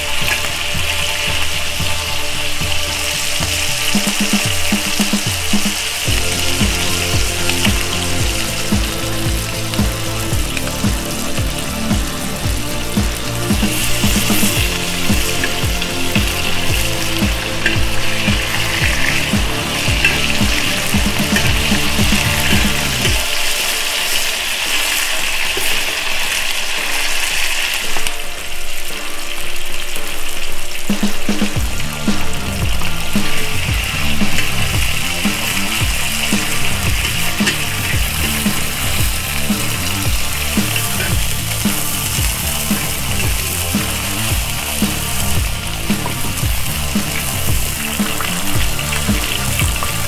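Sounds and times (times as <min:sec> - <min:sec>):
meat sizzling in hot oil: 0:00.0 - 0:28.2, 0:31.8 - 0:50.0
background music with steady beat: 0:00.0 - 0:50.0.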